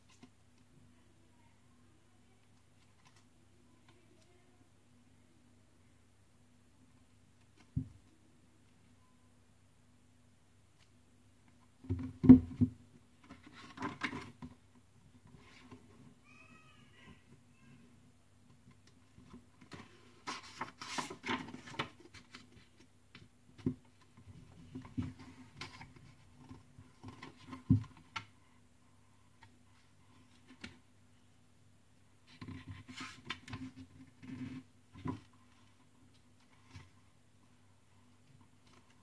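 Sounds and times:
book pages rustling and flipping: 0:18.7 - 0:28.3.

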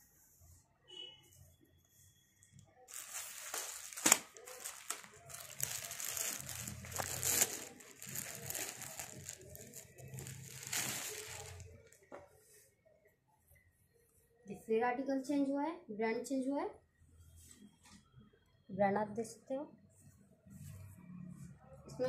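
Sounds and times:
t-shirt rustling and crinkling: 0:02.9 - 0:12.1.

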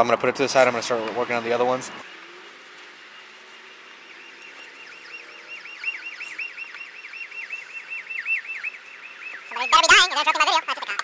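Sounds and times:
car alarm warbling: 0:03.1 - 0:11.0.

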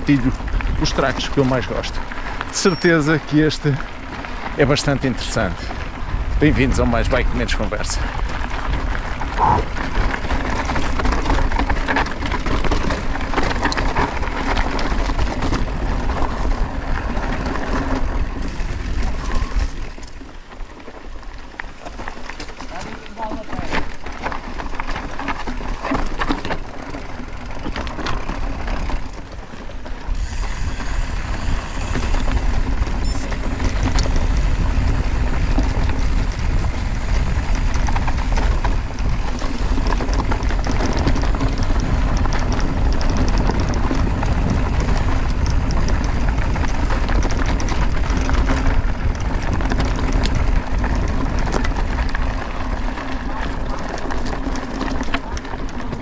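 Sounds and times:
bike tyres crunching on gravel: 0:00.0 - 0:56.0
steady deep rumble: 0:05.4 - 0:10.7.

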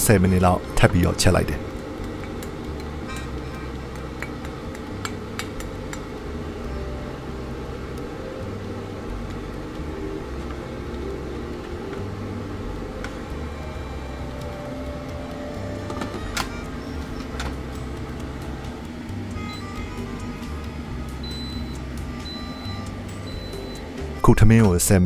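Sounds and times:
low machine hum: 0:00.0 - 0:25.0.

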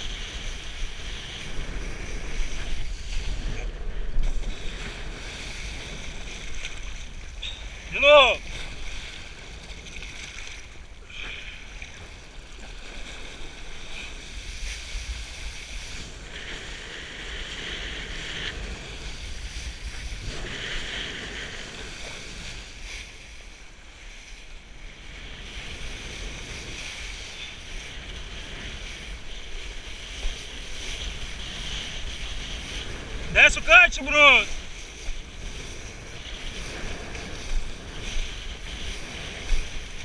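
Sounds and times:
wind buffeting camera: 0:00.0 - 0:11.0, 0:11.8 - 0:40.0.

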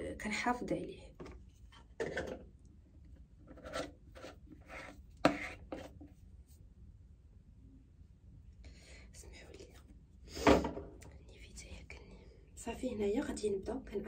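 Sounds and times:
plastic jar lid scraping: 0:01.9 - 0:02.4, 0:03.5 - 0:06.1.

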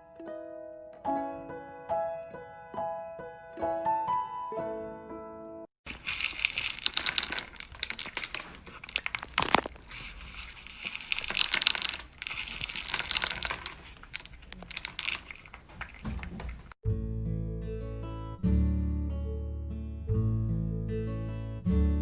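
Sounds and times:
kibble clicking in plastic bowl: 0:05.9 - 0:09.7, 0:10.9 - 0:16.7
cat crunching dry kibble: 0:05.9 - 0:16.8.

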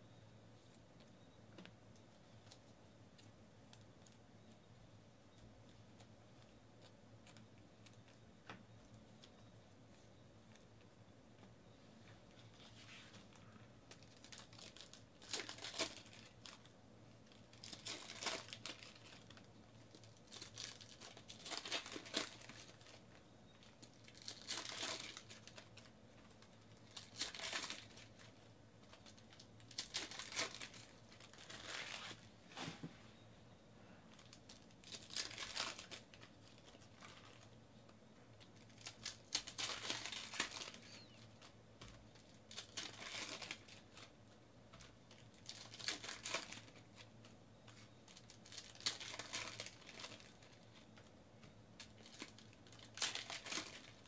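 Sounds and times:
foil wrappers crinkling and tearing: 0:12.6 - 0:32.3, 0:34.1 - 0:37.6, 0:38.5 - 0:44.1, 0:44.8 - 0:51.1, 0:51.8 - 0:54.0.

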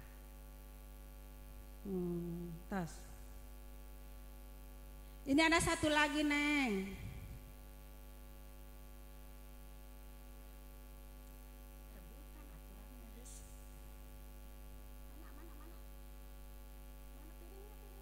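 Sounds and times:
electrical mains hum: 0:00.0 - 0:18.0.

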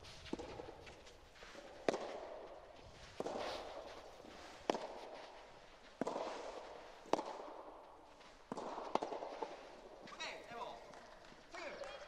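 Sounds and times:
ball popping off rackets: 0:01.6 - 0:02.4, 0:04.6 - 0:05.3, 0:06.0 - 0:07.6, 0:08.4 - 0:09.6
ball bouncing on court: 0:01.6 - 0:02.5, 0:04.6 - 0:05.2, 0:06.0 - 0:07.8, 0:08.4 - 0:12.0.

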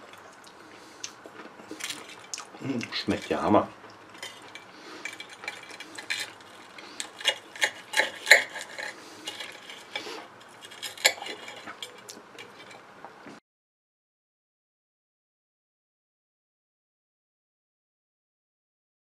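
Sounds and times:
fried crust crunching: 0:00.0 - 0:12.9
cutlery clicking on a plate: 0:04.2 - 0:12.8.

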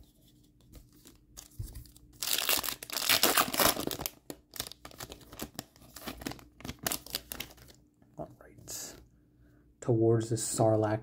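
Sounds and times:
foil wrapper crinkling and tearing: 0:01.1 - 0:07.8.

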